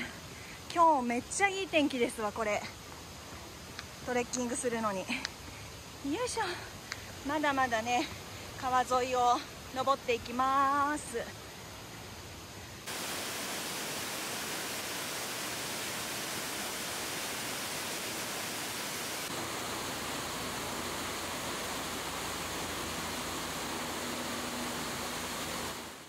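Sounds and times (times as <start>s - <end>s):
mountain stream rushing: 10.9s - 26.0s.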